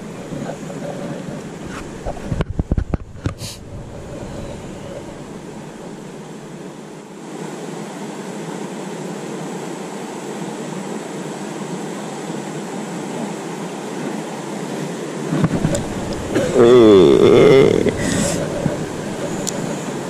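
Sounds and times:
river current rushing over rocks: 0:03.2 - 0:08.4, 0:12.3 - 0:20.0.

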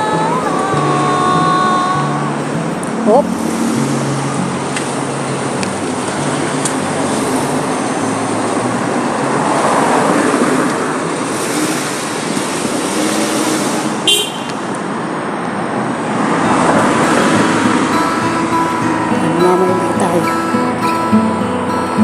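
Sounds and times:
street traffic noise: 0:00.0 - 0:22.0
car engine driving past: 0:02.2 - 0:14.1
car horn toot: 0:13.6 - 0:14.7.

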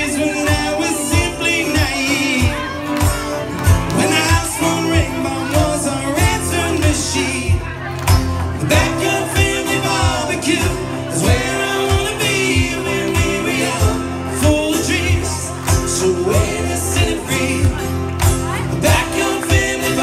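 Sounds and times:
acoustic guitars: 0:00.0 - 0:20.0
bass: 0:00.0 - 0:20.0
male lead vocals: 0:00.0 - 0:20.0
steady drum beat: 0:00.0 - 0:20.0.

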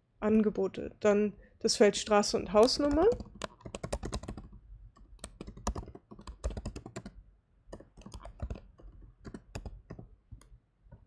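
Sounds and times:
keyboard typing clicks: 0:02.6 - 0:10.5.

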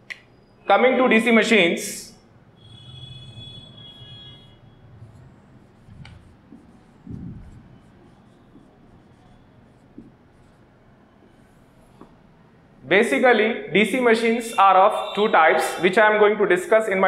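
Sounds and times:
marker squeak: 0:02.6 - 0:10.6
marker scratching on whiteboard: 0:02.7 - 0:12.2.

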